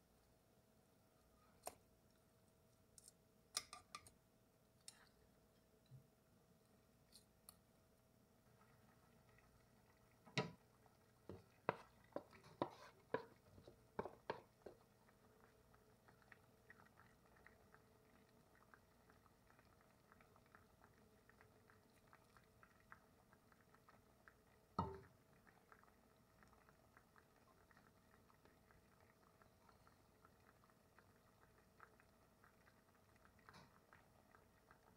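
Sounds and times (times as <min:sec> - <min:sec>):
liquid simmering crackle: 0:00.0 - 0:34.9
vegetables clacking into pot: 0:03.0 - 0:04.2.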